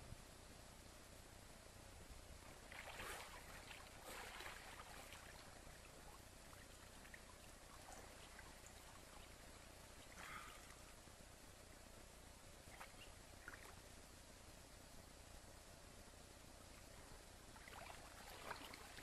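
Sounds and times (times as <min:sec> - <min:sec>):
steady hiss: 0:00.0 - 0:19.0
water splashing: 0:02.4 - 0:11.0, 0:17.5 - 0:19.0.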